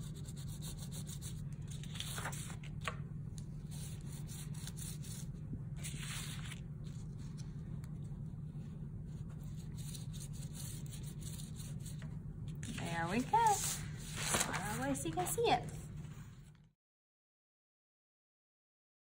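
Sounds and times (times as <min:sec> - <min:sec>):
crayon rubbing on paper: 0:00.0 - 0:01.4, 0:09.1 - 0:12.0
steady low hum: 0:00.0 - 0:16.7.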